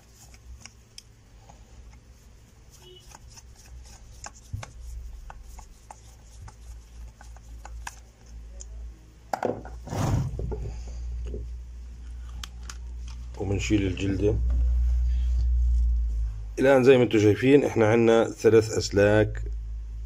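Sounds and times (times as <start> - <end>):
scraping rub: 1.5 - 8.4.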